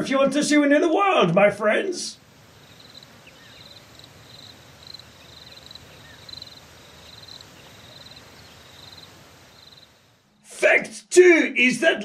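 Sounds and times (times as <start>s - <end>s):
low background hiss: 0.0s - 12.0s
insect trilling: 2.4s - 10.1s.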